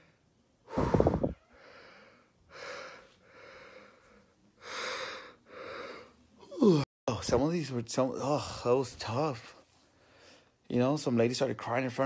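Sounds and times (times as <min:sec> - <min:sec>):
man breathing heavily: 0:00.0 - 0:06.9
man yawning: 0:06.4 - 0:06.9.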